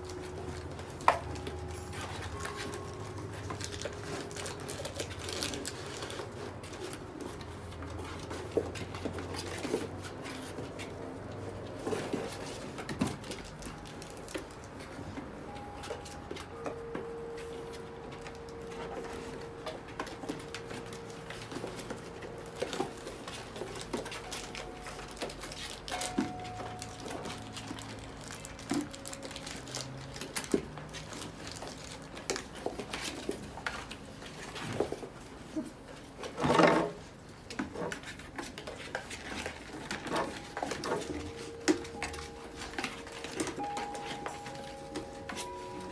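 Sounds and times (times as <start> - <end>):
paws on floor: 0.0 - 45.9
puppies scrambling in cardboard boxes: 0.0 - 45.9.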